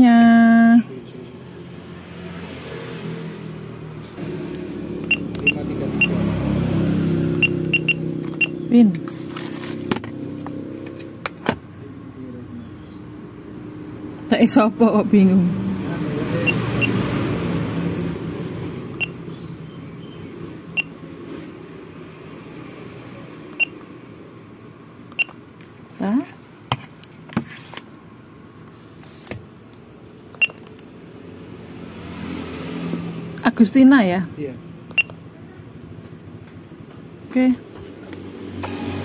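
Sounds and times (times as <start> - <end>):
keypad beeps: 5.1 - 6.2, 7.4 - 8.6, 19.0 - 19.2, 23.6 - 23.8, 25.2 - 25.4, 30.4 - 30.6, 35.0 - 35.2.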